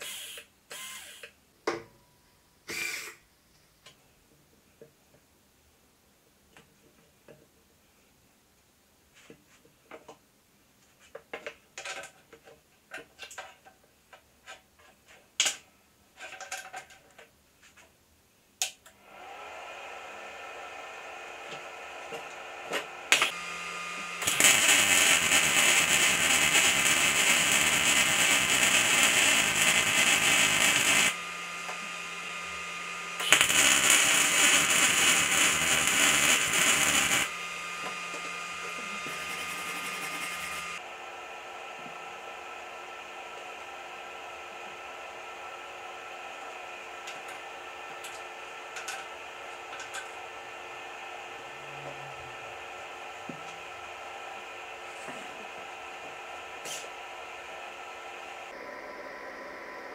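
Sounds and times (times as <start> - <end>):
welder machine hum: 0.0 - 1.3, 19.0 - 59.9
welding arc crackling: 21.4 - 40.8.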